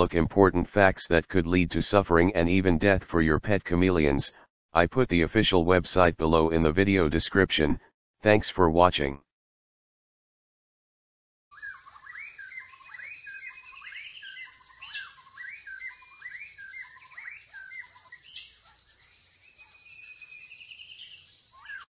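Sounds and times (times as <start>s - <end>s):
birds whistling and warbling: 11.5s - 21.9s.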